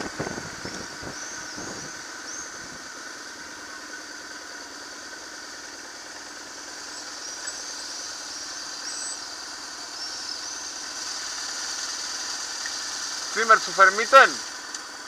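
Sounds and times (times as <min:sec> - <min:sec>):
motorcycle engine idling: 0:00.0 - 0:15.0
faint high chirps: 0:06.8 - 0:10.8.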